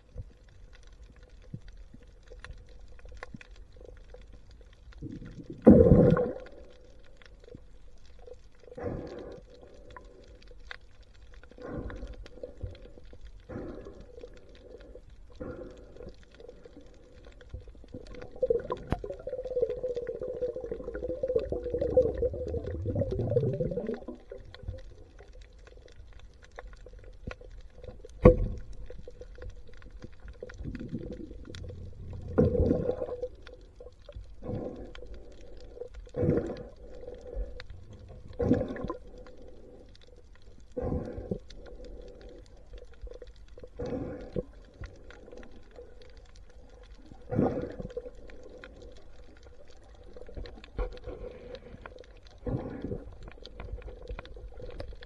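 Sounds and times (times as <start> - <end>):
warbling underwater gurgle: 0.0 - 55.0
underwater thumps and gurgles: 5.0 - 6.6, 17.6 - 25.3, 27.1 - 34.9, 37.3 - 39.2.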